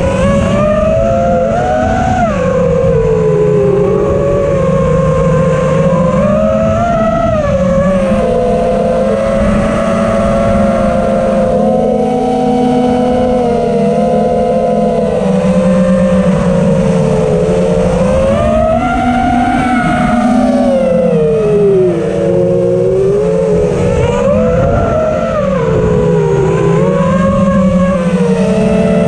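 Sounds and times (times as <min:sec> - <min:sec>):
drone motors and propellers whining: 0:00.0 - 0:29.0.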